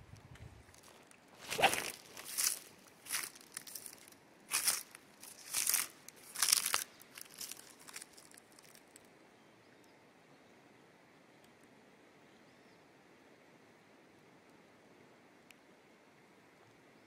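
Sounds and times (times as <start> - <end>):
footsteps crunching on dry reeds: 0.7 - 8.9.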